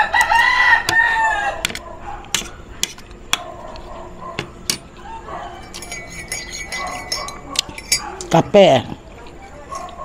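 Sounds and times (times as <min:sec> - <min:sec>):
rooster crowing: 0:00.0 - 0:01.9, 0:05.0 - 0:06.2
cutlery clinking on a plate: 0:05.6 - 0:08.4.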